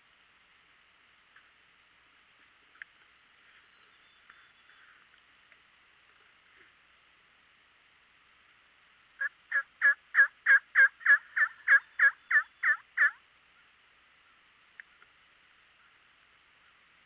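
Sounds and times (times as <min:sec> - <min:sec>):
turkey yelps: 0:09.2 - 0:13.2.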